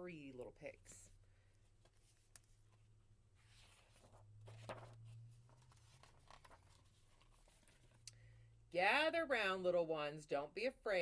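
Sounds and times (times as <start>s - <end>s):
low steady hum: 0.0s - 9.9s
book pages rustling: 1.6s - 8.0s.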